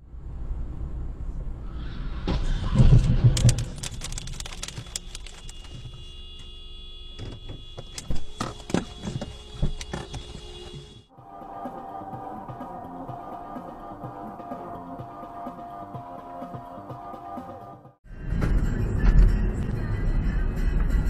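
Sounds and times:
road noise inside moving car: 0.0s - 11.1s, 18.0s - 21.0s.

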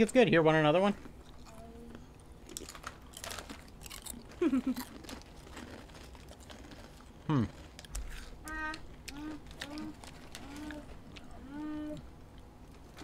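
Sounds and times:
potato chips crunching: 2.4s - 11.6s.

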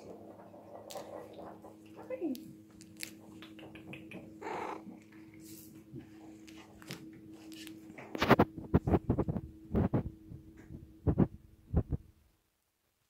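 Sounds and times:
kitten crying: 4.3s - 4.9s.

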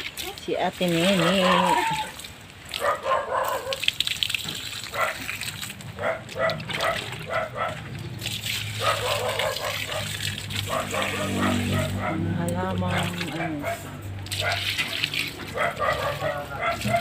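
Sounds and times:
dog barking: 1.1s - 2.0s, 2.7s - 3.9s, 4.9s - 5.3s, 6.0s - 7.8s, 8.7s - 17.0s.

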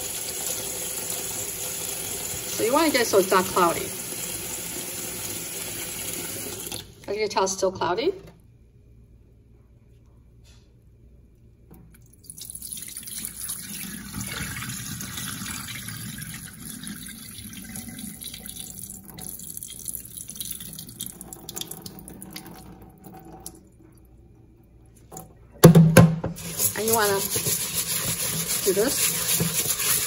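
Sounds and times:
water pouring into a steel sink: 0.0s - 7.0s, 12.2s - 23.8s, 26.4s - 30.0s.

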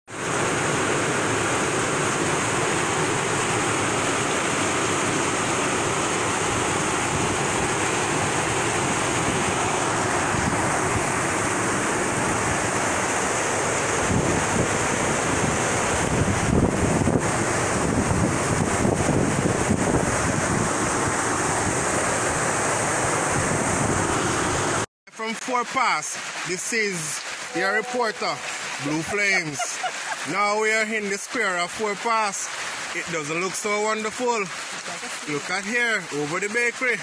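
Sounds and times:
floodwater rushing over rocks: 0.1s - 37.0s
wind rumble on microphone: 6.0s - 24.8s.

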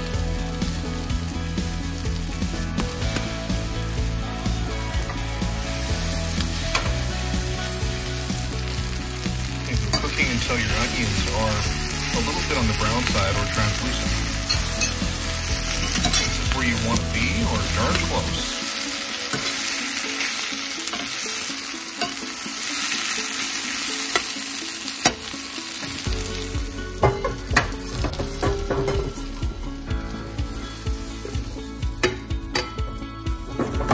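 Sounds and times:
vegetables sizzling in a pan: 0.0s - 33.9s
spatula scraping a pan: 14.1s - 16.6s.

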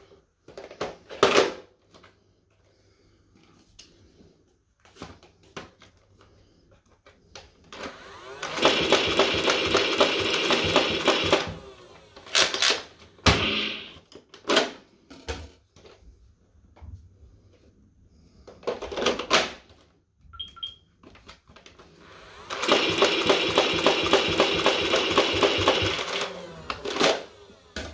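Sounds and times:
toy blaster full-auto firing: 7.8s - 14.0s, 22.1s - 27.5s
short electronic beeps: 20.4s - 20.8s.

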